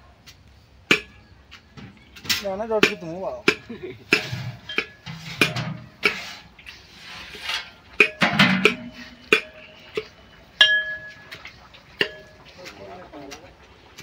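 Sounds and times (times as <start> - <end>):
metal pots and utensils clanking: 0.9 - 14.0.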